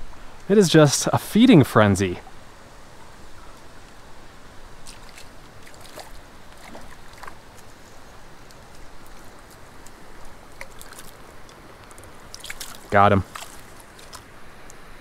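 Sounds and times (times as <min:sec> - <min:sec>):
steady background hiss: 0:00.0 - 0:15.0
fish splashing at water surface: 0:04.8 - 0:07.7, 0:09.0 - 0:14.4.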